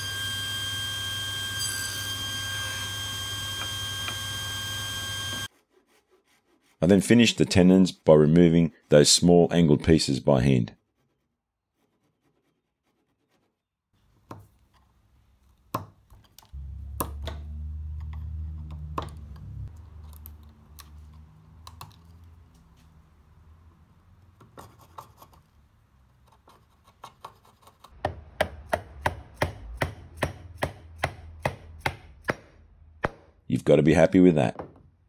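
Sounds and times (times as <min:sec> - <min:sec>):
low hum: 0:16.6 - 0:20.6.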